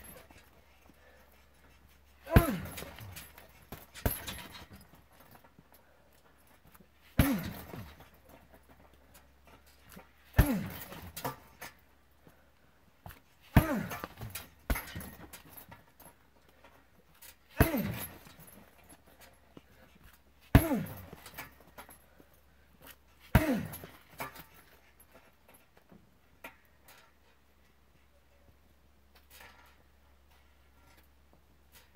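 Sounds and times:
man grunting: 0:02.2 - 0:03.2, 0:10.4 - 0:11.0, 0:13.6 - 0:14.1, 0:23.4 - 0:23.9
kicks thudding on punching bag: 0:02.3 - 0:04.9, 0:07.2 - 0:08.1, 0:10.3 - 0:11.4, 0:13.6 - 0:15.6, 0:17.6 - 0:18.3, 0:20.5 - 0:21.3, 0:23.3 - 0:24.0.

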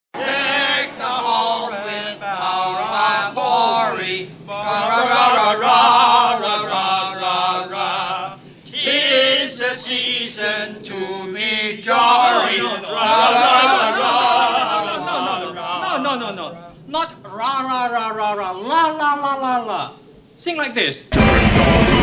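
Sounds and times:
voices singing a chant-like tune: 0:00.2 - 0:16.9, 0:21.1 - 0:22.0.

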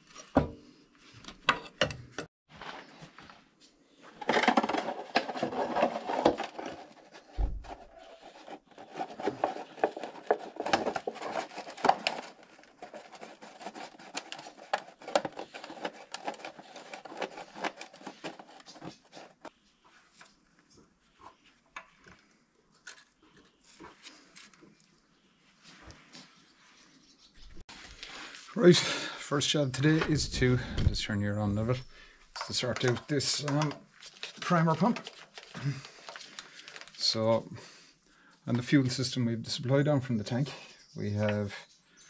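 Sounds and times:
plastic container crinkling: 0:04.0 - 0:19.5, 0:31.6 - 0:37.2.

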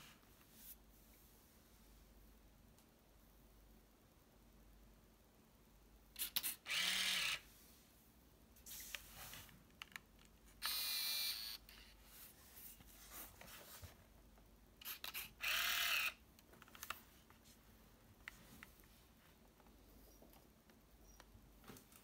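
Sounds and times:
camera motor whirring: 0:06.4 - 0:07.4, 0:10.6 - 0:11.6, 0:14.8 - 0:16.2.

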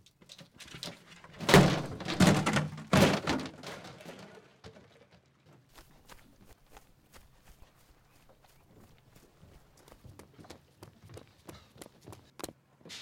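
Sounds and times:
plastic crates thudding: 0:01.0 - 0:05.2.

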